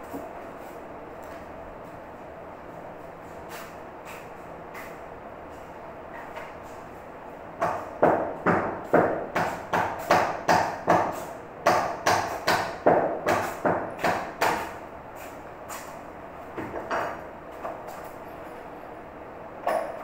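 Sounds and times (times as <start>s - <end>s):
hammer striking a chisel: 7.6s - 14.7s, 19.6s - 20.0s.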